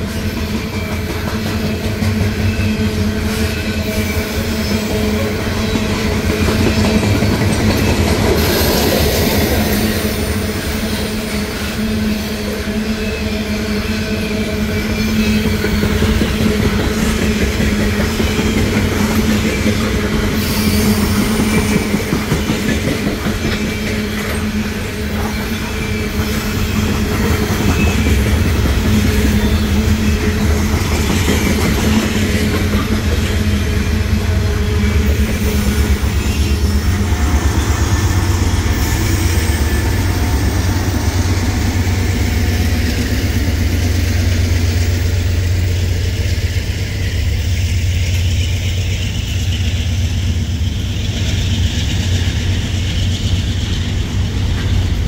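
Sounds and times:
freight train wheels rumbling: 0:00.0 - 0:55.0
high wheel squeal: 0:18.0 - 0:22.8, 0:23.4 - 0:55.0.

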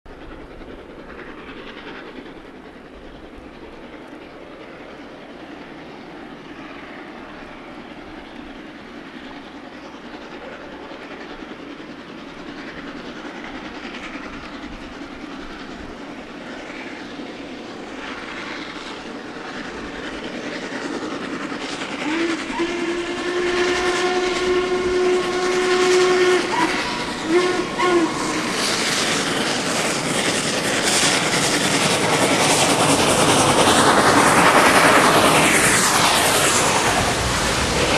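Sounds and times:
steam locomotive exhaust beats: 0:00.1 - 0:37.9
steam whistle blasts: 0:22.0 - 0:29.0.

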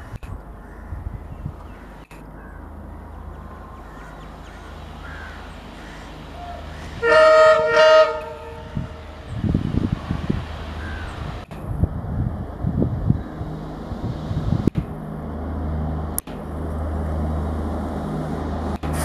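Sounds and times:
diesel locomotive engine running: 0:00.0 - 0:19.0
low rumbling: 0:00.0 - 0:19.0
locomotive air horn blasts: 0:06.4 - 0:09.3.

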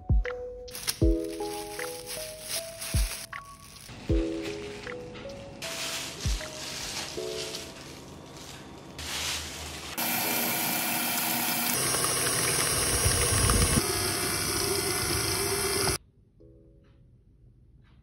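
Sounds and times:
stand mixer motor running: 0:10.0 - 0:16.0.

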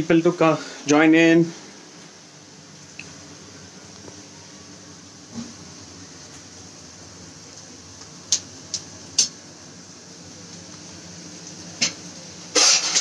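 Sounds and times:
low room hum: 0:00.0 - 0:13.0.

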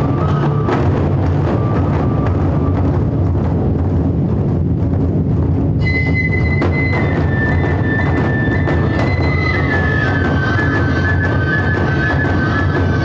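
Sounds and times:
taiko drums playing: 0:00.0 - 0:13.0
high flute held notes: 0:05.8 - 0:13.0.

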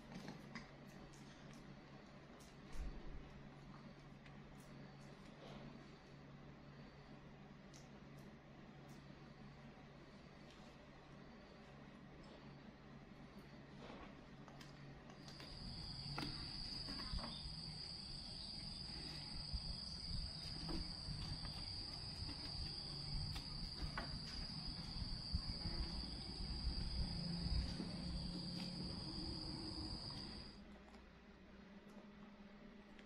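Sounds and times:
insects trilling: 0:15.2 - 0:30.6.

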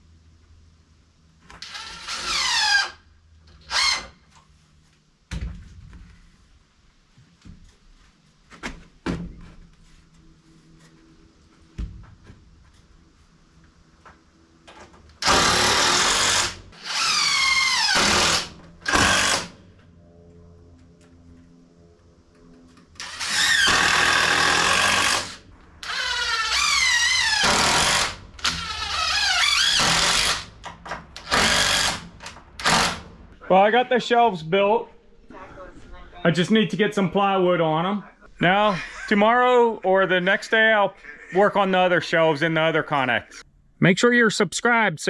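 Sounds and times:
cordless drill whining: 0:01.6 - 0:04.1, 0:15.2 - 0:19.5, 0:23.0 - 0:30.5.

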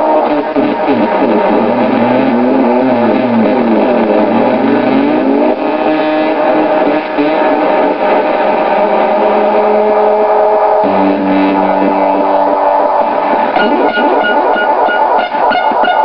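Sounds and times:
square-wave synth drone with echoes: 0:07.5 - 0:16.0.

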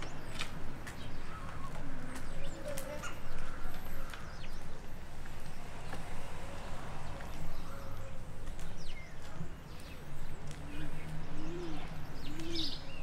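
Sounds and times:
small birds chirping: 0:00.0 - 0:13.0
pigeon cooing: 0:11.4 - 0:12.9.

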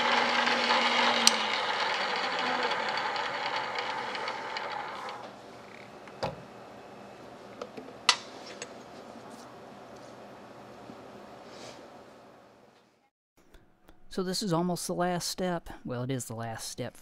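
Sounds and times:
drill press running: 0:00.0 - 0:08.8.

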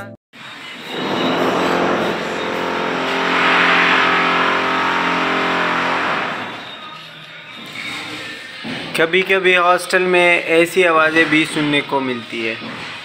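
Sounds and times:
vehicle engine passing by: 0:00.8 - 0:07.0.

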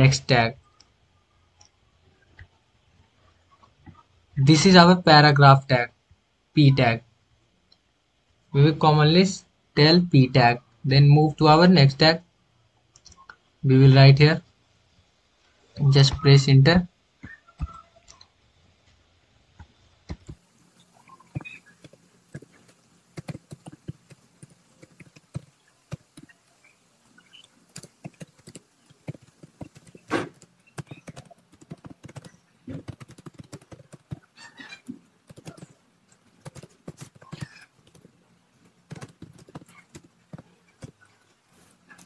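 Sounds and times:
keyboard typing: 0:21.3 - 0:26.3, 0:27.7 - 0:41.1.

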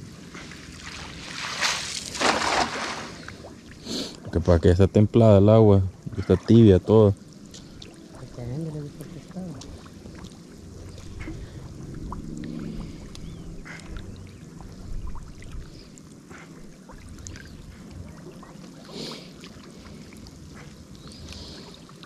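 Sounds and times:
person wading through water: 0:00.0 - 0:04.2, 0:07.2 - 0:22.0.

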